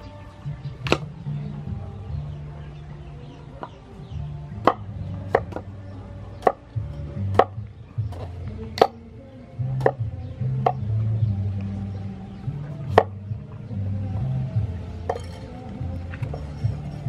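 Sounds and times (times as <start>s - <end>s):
background music with bass: 0.0s - 17.0s
cleaver chopping on wooden board: 0.8s - 1.1s, 4.6s - 5.7s, 6.4s - 9.0s, 9.8s - 10.9s, 12.9s - 13.2s.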